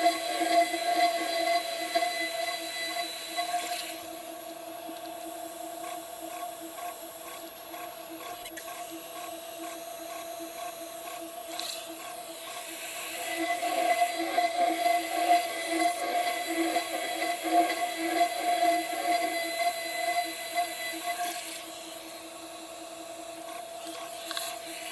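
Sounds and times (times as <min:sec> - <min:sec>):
router spindle milling metal: 0:00.0 - 0:04.0, 0:11.5 - 0:21.9.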